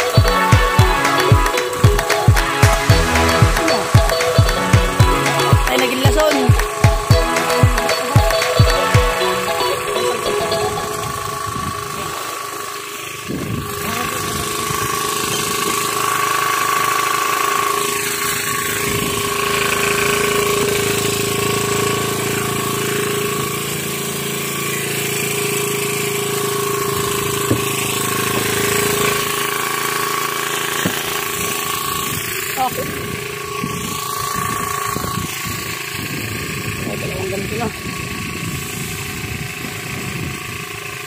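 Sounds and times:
small boat engine running: 0.0 - 41.0.

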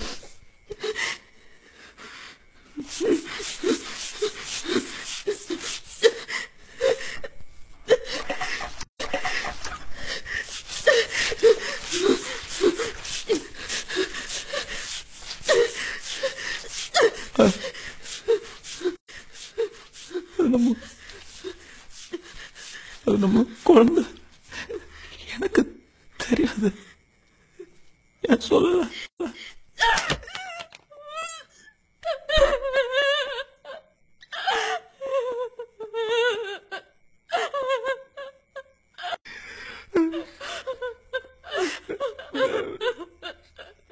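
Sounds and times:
woman laughing: 7.9 - 10.2, 32.0 - 33.8, 34.4 - 38.4, 39.9 - 43.9.

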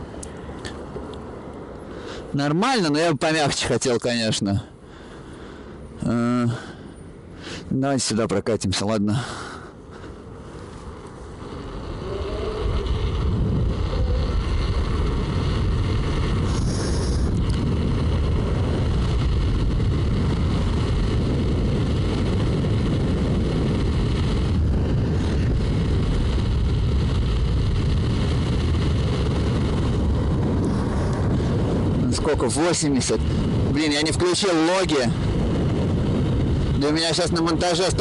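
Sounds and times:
wind buffeting microphone: 9.7 - 38.0.

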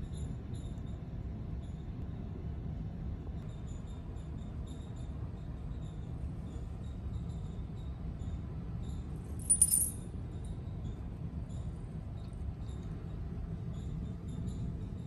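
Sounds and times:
steady low hum: 8.8 - 15.0
bright metallic jingle: 9.4 - 10.0.

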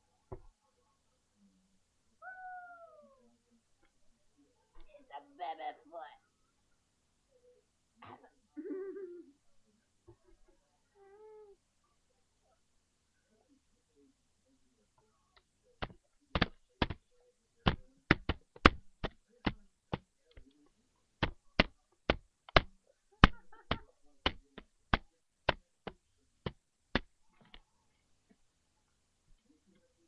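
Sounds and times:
baby's hands slapping hard surface: 15.8 - 17.0, 21.2 - 27.1.

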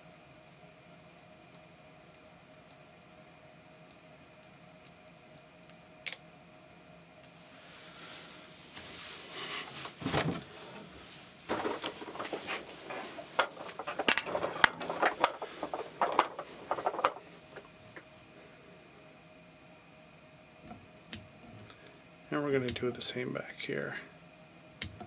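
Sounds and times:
rustling of handled materials: 7.4 - 18.1.

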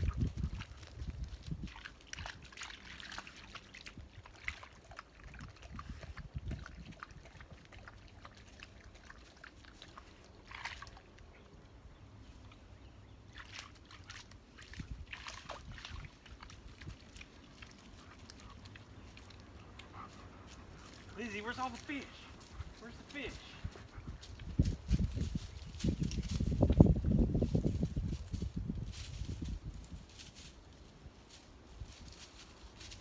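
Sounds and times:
dogs wading in water: 0.0 - 11.6, 13.2 - 24.6.

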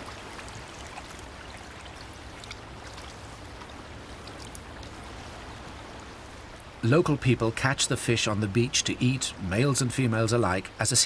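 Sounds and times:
shallow water washing on shingle: 0.0 - 6.6
faint light ticks: 2.0 - 5.0, 6.5 - 6.7.

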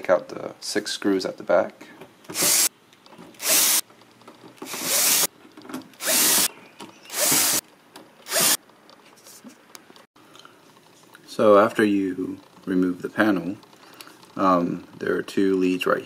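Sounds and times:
cordless drill backing out screws: 4.6 - 5.3, 6.0 - 6.5, 7.1 - 7.6, 8.2 - 8.6.

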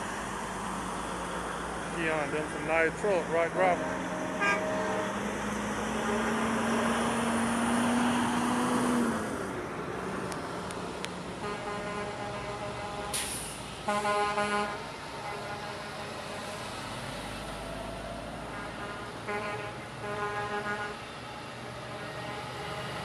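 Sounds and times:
passing trucks: 0.0 - 23.0
truck air horn blasts: 3.8 - 5.3, 11.4 - 16.6, 18.5 - 21.0.

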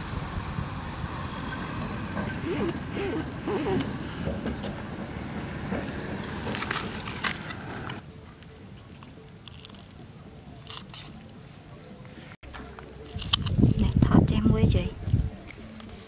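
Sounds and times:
steady background noise: 0.0 - 16.0
snail shells clicking and cracking: 9.0 - 13.7.

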